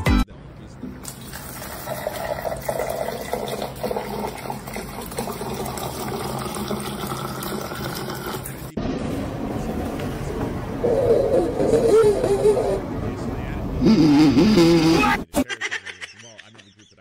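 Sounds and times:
water pouring into plastic cup: 1.0s - 8.6s.

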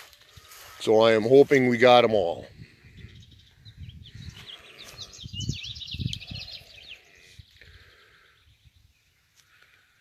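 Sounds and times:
faint outdoor background: 0.0s - 10.0s
small bird singing: 2.0s - 10.0s.

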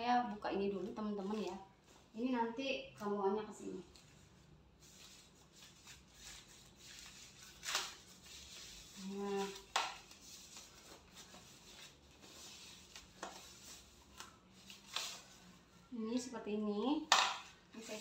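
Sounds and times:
foam wrap rustling: 3.9s - 15.6s.

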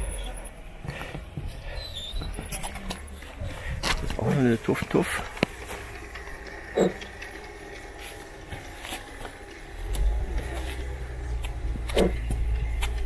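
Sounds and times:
model locomotive engine rumble: 3.1s - 13.0s.

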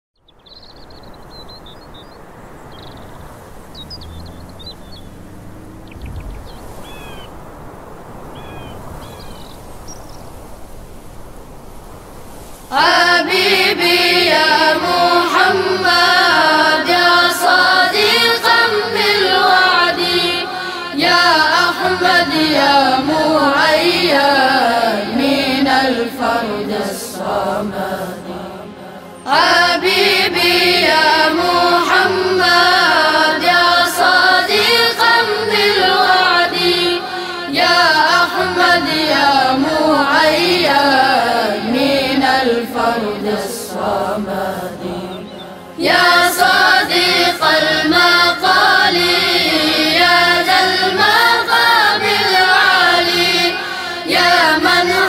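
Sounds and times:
faint hiss: 0.3s - 55.0s
group of voices chanting: 12.7s - 55.0s.

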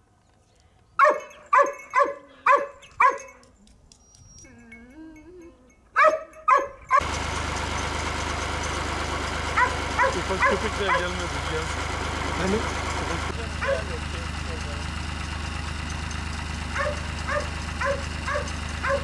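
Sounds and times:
dog barking: 1.0s - 3.4s, 6.0s - 7.0s, 9.6s - 11.1s, 13.6s - 13.9s, 16.8s - 19.0s
dog wavering cry: 16.8s - 19.0s.

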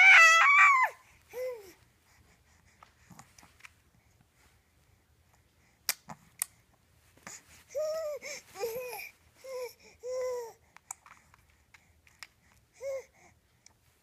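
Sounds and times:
baby cooing and babbling: 0.0s - 1.8s, 7.7s - 10.6s.

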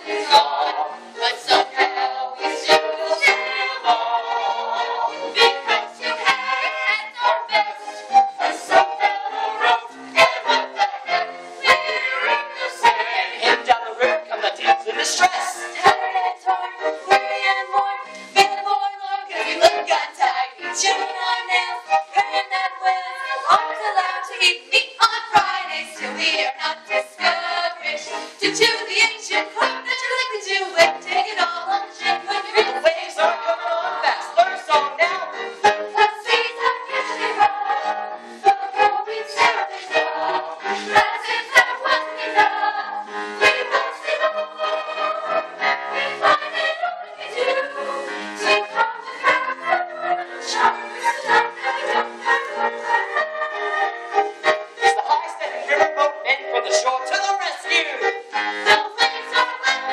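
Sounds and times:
teenage voices singing together: 0.0s - 59.9s
instrumental accompaniment: 25.0s - 59.9s.

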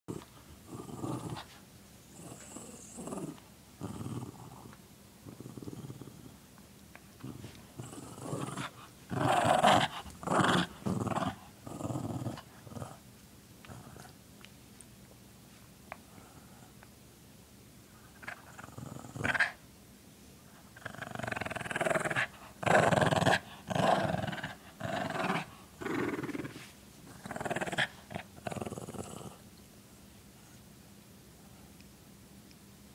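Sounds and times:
small dog growling: 0.1s - 6.4s, 7.2s - 13.0s, 13.6s - 14.2s, 18.1s - 19.6s, 20.8s - 29.4s.

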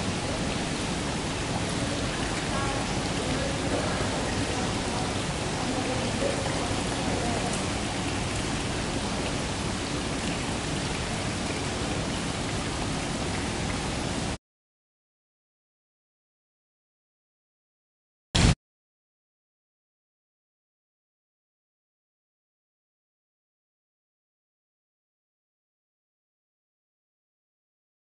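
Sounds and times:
flowing water hiss: 0.0s - 14.4s.

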